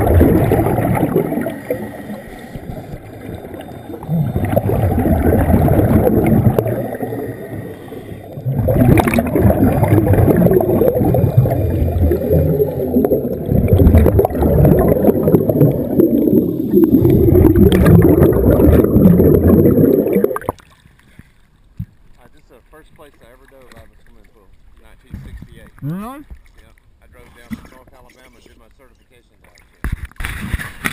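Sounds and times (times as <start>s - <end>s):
underwater bubbles gurgling: 0.0s - 20.8s.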